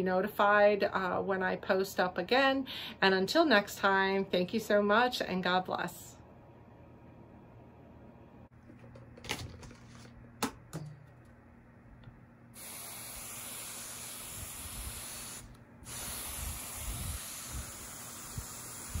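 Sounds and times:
spray bottle hissing: 12.6s - 19.0s.

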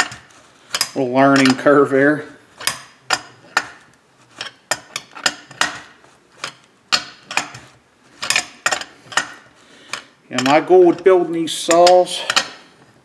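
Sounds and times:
hand ratchet clicking: 0.0s - 1.7s, 2.6s - 3.8s, 8.2s - 12.6s.

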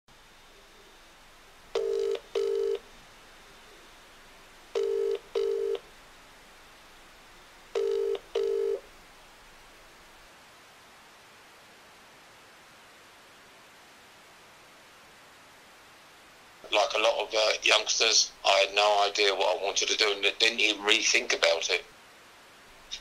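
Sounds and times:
faint hiss: 0.1s - 23.0s
telephone double ring: 1.8s - 2.8s, 4.8s - 5.8s, 7.8s - 8.8s.

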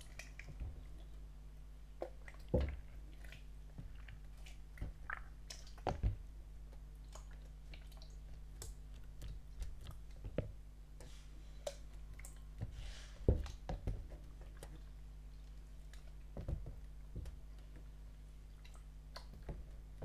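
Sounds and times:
sticky slime being squished: 2.0s - 14.9s.

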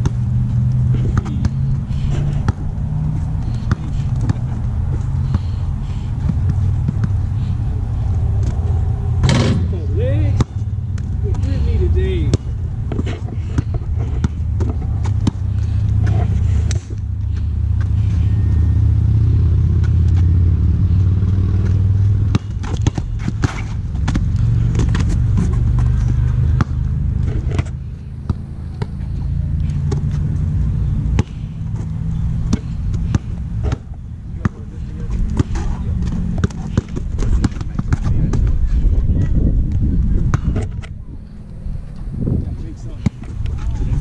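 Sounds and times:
basketball bouncing: 0.0s - 5.6s, 6.2s - 7.3s, 9.2s - 11.5s, 12.3s - 16.9s, 21.3s - 29.0s, 29.7s - 38.6s
low rumble: 0.0s - 11.8s.

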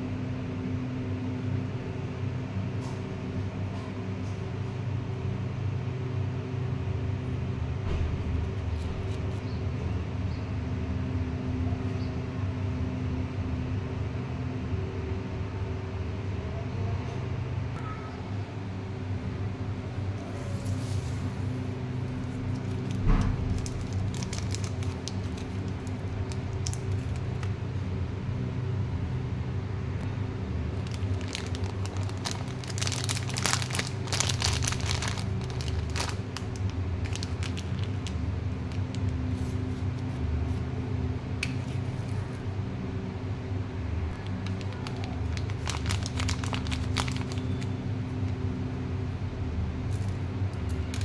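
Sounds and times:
steady low hum: 0.0s - 51.0s
plastic packets crinkling: 22.0s - 27.5s, 30.7s - 39.6s, 44.1s - 48.4s.

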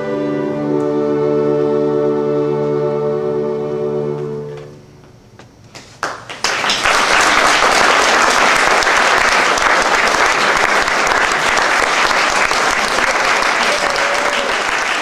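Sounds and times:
orchestra holding chord: 0.0s - 4.9s
audience applause: 6.0s - 15.0s.

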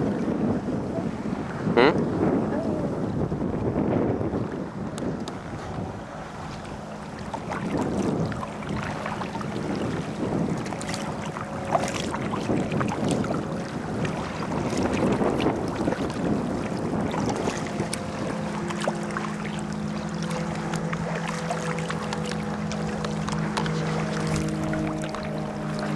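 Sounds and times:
water lapping and splashing: 0.0s - 25.9s
wind buffeting microphone: 0.0s - 25.9s
paddle splashes: 3.7s - 25.9s
steady low tone: 16.9s - 25.9s.

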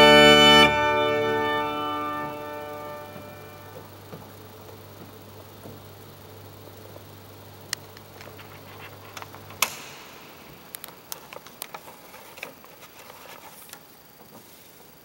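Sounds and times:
low steady hum: 0.0s - 15.0s
sheet music paper rustling: 8.2s - 9.9s, 11.0s - 15.0s
sharp click: 9.1s - 11.8s.

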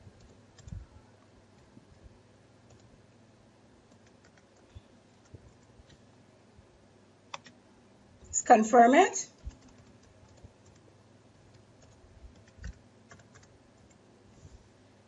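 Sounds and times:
keyboard keystrokes: 7.3s - 7.6s, 9.4s - 10.8s, 11.5s - 14.0s.

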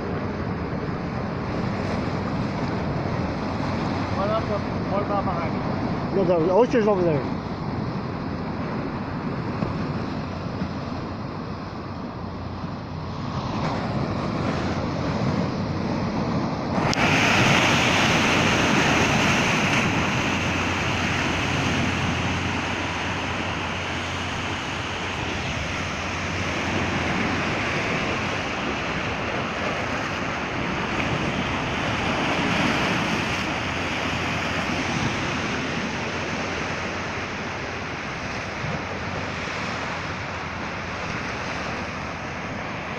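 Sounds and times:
wind on microphone: 0.0s - 42.9s
surf breaking on rocks: 13.0s - 42.9s.

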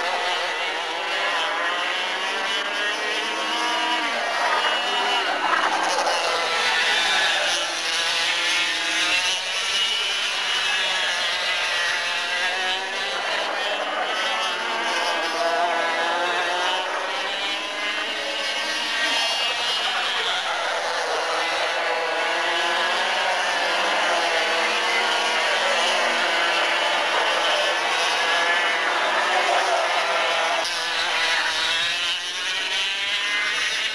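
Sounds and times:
kart engines buzzing and revving: 0.0s - 33.9s.

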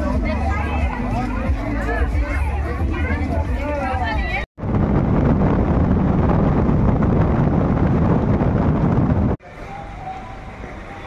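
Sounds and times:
moving vehicle rumble: 0.0s - 11.0s
wind rushing over microphone: 4.1s - 9.4s.

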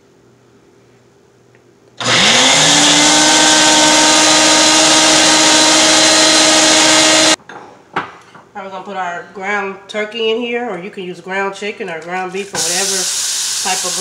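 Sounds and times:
blender motor whining: 2.0s - 7.4s.

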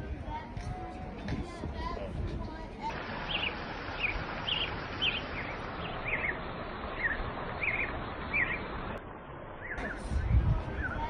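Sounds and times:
steady background hiss: 2.8s - 11.0s
small bird chirping: 3.2s - 8.8s.

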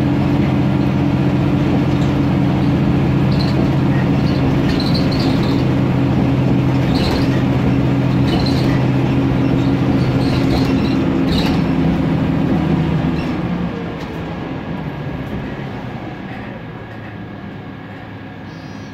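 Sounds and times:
bus engine hum: 0.0s - 18.9s
interior fittings rattling: 1.8s - 12.0s.

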